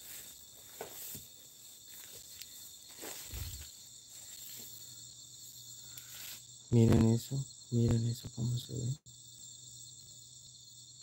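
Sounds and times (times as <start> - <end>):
footsteps through undergrowth: 0.0 - 6.5
night insects chirring: 0.0 - 11.0.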